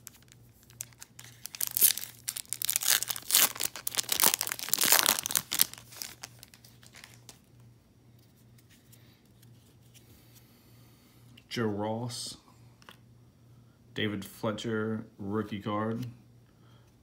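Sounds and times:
foil wrapper crinkling and tearing: 0.0 - 7.4.

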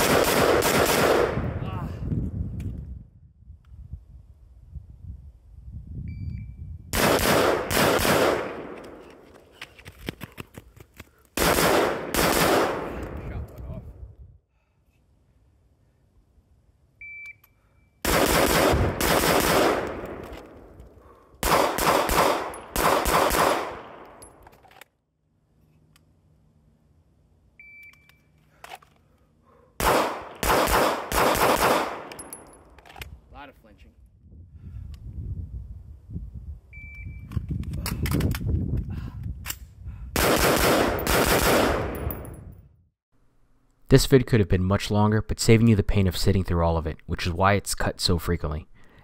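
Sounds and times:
pistol shots echoing: 0.0 - 1.4, 7.0 - 9.0, 11.4 - 13.0, 18.0 - 20.4, 21.4 - 24.2, 29.8 - 32.4, 40.2 - 42.0
rifle firing rapid shots: 0.0 - 1.4, 6.9 - 8.8, 11.4 - 13.0, 18.0 - 20.2, 21.4 - 24.0, 29.8 - 32.1, 40.2 - 42.0
short beep: 6.0 - 6.7, 17.0 - 18.0, 27.6 - 28.3, 36.7 - 37.3
shot timer beep: 17.0 - 17.5.

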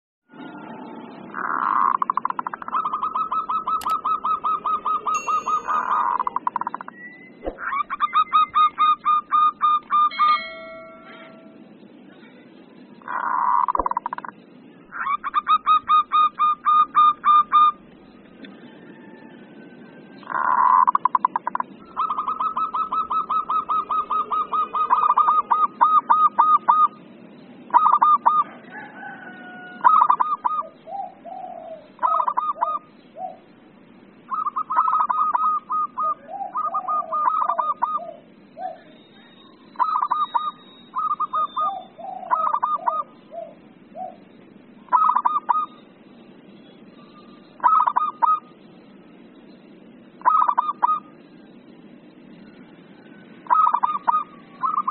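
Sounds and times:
dove cooing: 1.4 - 6.8, 20.2 - 27.0, 27.7 - 33.5, 34.3 - 44.3, 44.9 - 45.7, 47.1 - 48.5, 50.2 - 51.1, 53.4 - 54.9.

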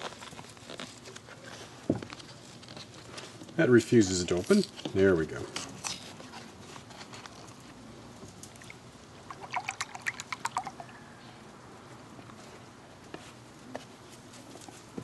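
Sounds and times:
cream glugging into bowl: 8.6 - 11.0.

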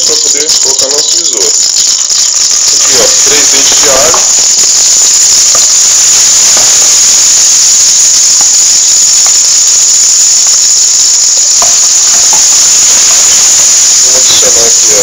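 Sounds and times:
garlic sizzling in hot oil: 0.0 - 15.0.

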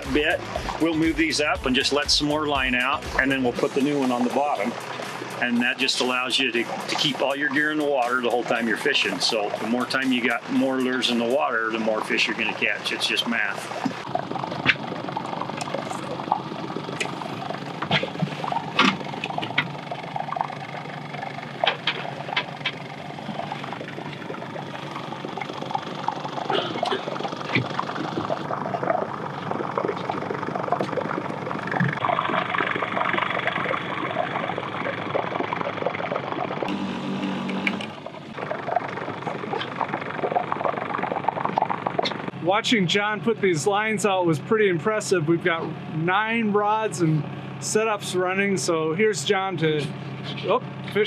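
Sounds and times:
boat motor running: 0.0 - 51.0
water noise: 0.0 - 51.0
wind: 12.8 - 35.6.

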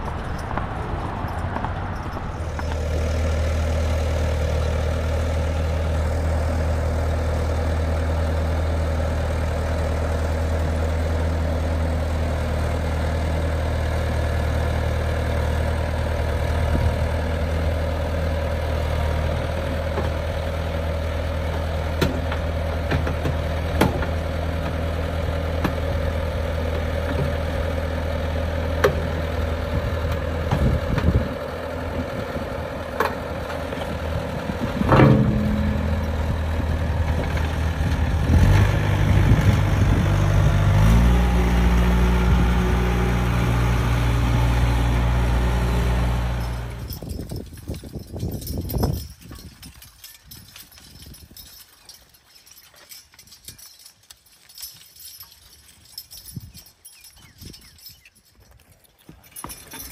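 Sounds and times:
diesel engine idling: 0.0 - 47.3.

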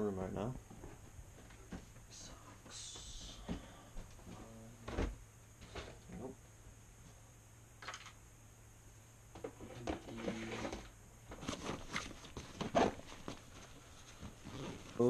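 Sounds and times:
rustling and clicks of handling: 9.4 - 15.0
backpack being opened: 14.4 - 15.0.

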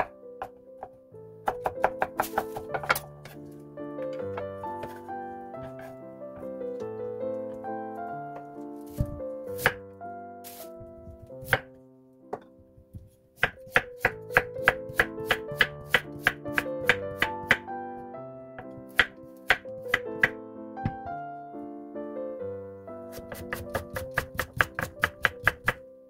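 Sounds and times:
knife chopping on wooden board: 0.0 - 3.4, 8.9 - 9.8, 11.4 - 11.7, 12.9 - 17.6, 18.6 - 21.1, 23.1 - 25.8
piano music: 0.0 - 26.0.

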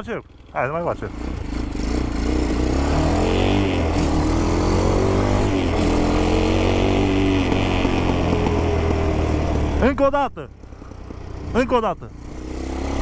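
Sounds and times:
atv engine accelerating: 0.0 - 13.0.

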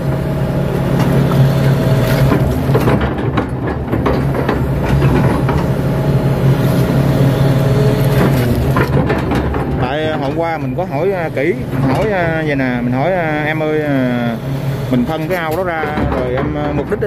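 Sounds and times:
excavator diesel engine running: 0.0 - 17.0
bucket knocks and rattles: 2.2 - 5.7, 8.2 - 10.6, 15.4 - 17.0.

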